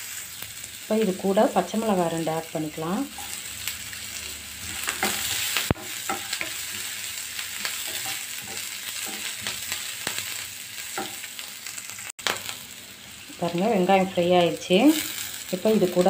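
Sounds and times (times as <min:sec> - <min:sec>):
onions sizzling in hot oil: 0:00.0 - 0:16.0
spatula scraping and tapping pan: 0:04.7 - 0:07.0, 0:07.6 - 0:10.3, 0:10.9 - 0:11.3.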